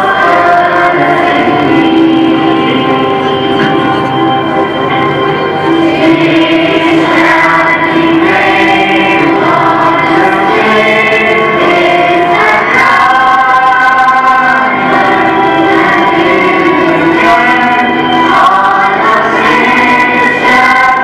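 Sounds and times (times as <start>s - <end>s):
children's choir singing: 0.0s - 21.0s.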